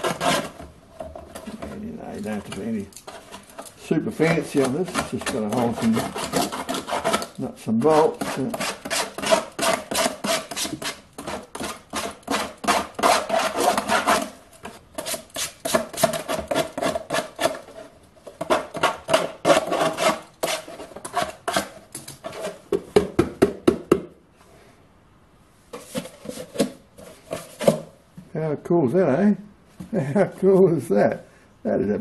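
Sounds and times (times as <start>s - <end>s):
knife scraping plastic edge: 0.0s - 0.7s, 1.3s - 22.7s.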